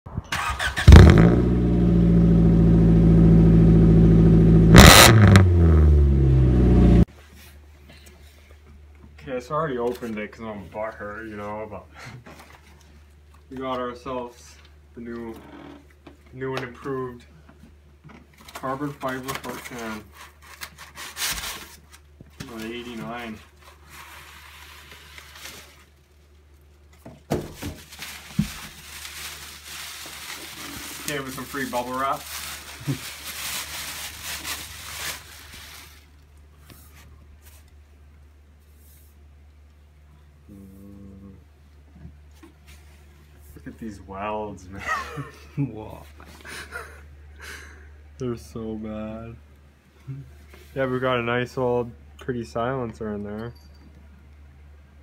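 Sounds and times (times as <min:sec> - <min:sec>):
car engine starting and idling: 0:00.3 - 0:07.1
bubble wrap and cardboard rustling: 0:18.4 - 0:37.7.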